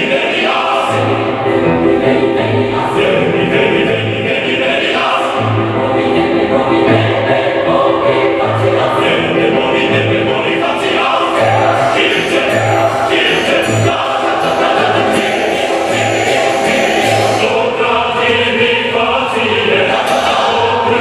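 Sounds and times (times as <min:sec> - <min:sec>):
choir singing: 0:00.0 - 0:21.0
steady bass beat: 0:11.2 - 0:17.6.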